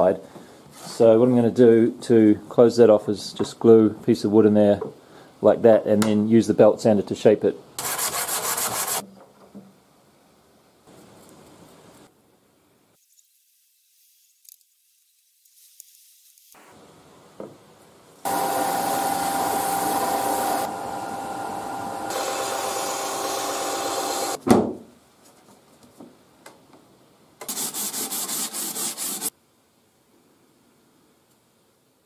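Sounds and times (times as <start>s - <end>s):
belt sander sanding wood: 7.8s - 9.0s, 18.3s - 24.4s, 27.5s - 29.3s.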